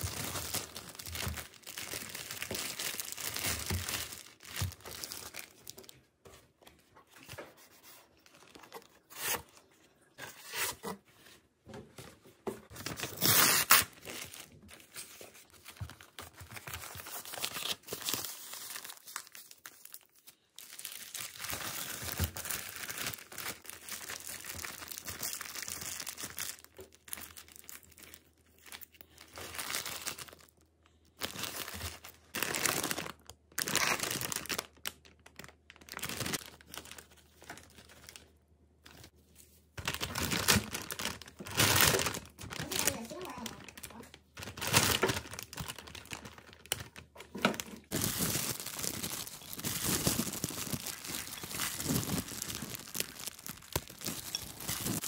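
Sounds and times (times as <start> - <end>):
plastic packaging crinkling: 0.0 - 10.2, 12.7 - 39.2, 39.8 - 55.0.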